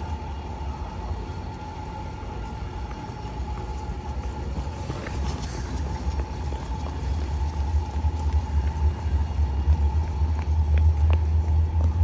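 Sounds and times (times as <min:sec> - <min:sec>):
tram running on tracks: 0:00.0 - 0:12.0.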